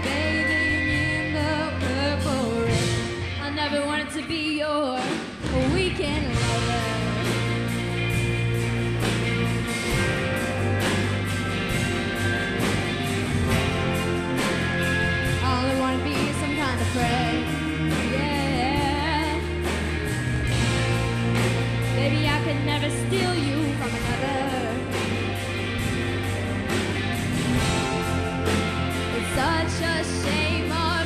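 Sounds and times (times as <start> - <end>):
woman singing: 0.0 - 7.6, 15.4 - 19.6, 21.9 - 25.0, 29.1 - 31.0
rock band playing slow ballad: 0.0 - 31.0.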